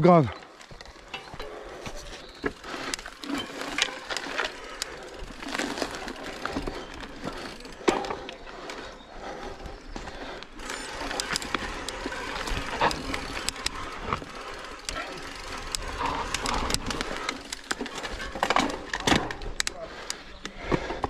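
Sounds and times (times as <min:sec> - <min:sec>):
bike tyres on rough ground: 0:00.0 - 0:21.0
bike clicks and rattles: 0:00.4 - 0:21.0.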